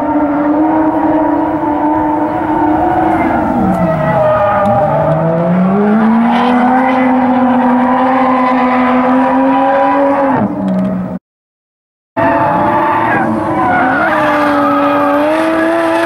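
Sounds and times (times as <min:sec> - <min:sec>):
car engine revving: 0:00.0 - 0:11.1, 0:12.2 - 0:16.0
tyre squeal: 0:01.7 - 0:05.1.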